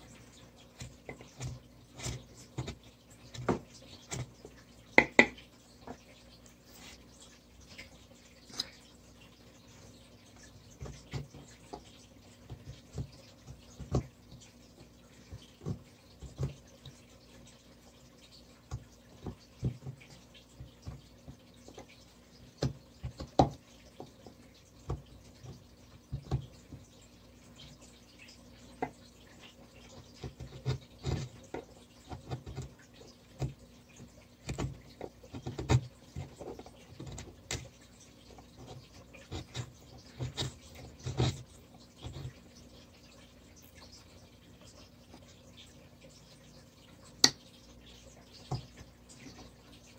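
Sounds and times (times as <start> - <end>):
chisel cutting wood: 38.6 - 42.4.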